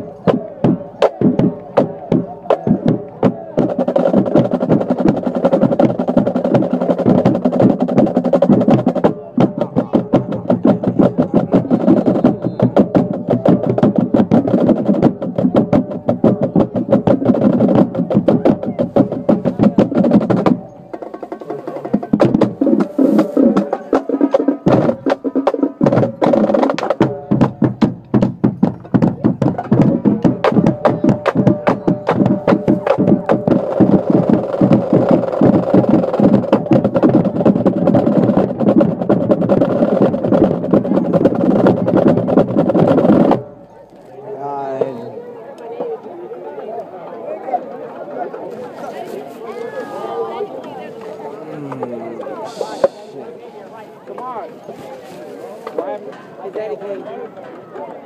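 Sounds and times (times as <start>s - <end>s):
rapid drum strokes: 0.0s - 43.6s, 51.7s - 53.2s.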